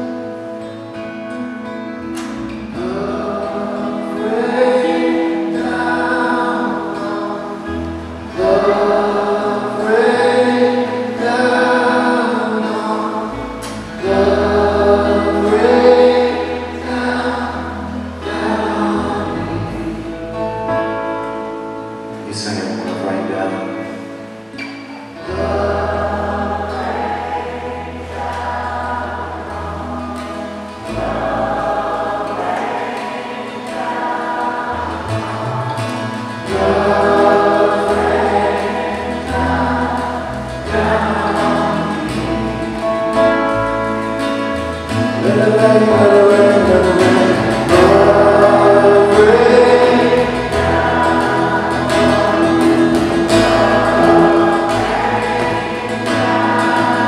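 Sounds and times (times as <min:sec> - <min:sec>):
strummed acoustic guitars: 0:00.0 - 0:57.0
many voices singing worship song: 0:02.1 - 0:57.0
low bass line: 0:34.8 - 0:57.0.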